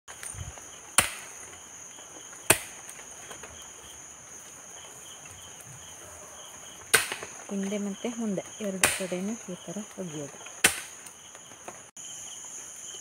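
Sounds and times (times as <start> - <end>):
insect chirring: 0.1 - 13.0
hoe striking soil: 2.5 - 3.4.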